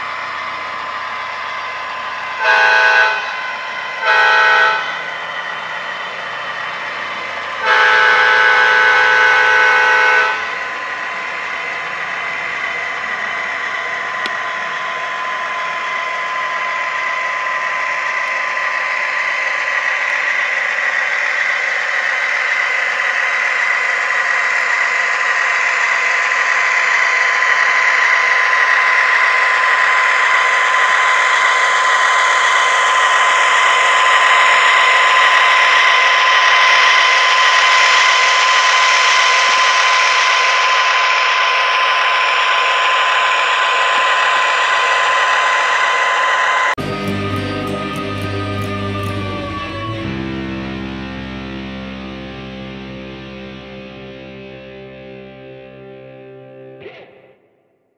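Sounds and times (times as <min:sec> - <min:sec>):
diesel engine sound: 0:00.0 - 0:57.6
model locomotive multi-tone horn: 0:02.4 - 0:05.1, 0:07.5 - 0:10.7, 0:46.8 - 0:51.7.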